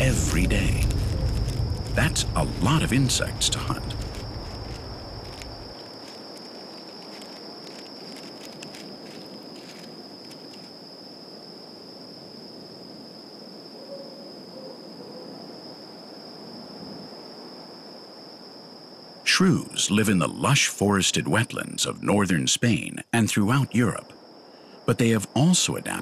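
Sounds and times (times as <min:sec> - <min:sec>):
high-pitched insect trill: 0:00.0 - 0:19.2
faint background hiss: 0:00.0 - 0:26.0.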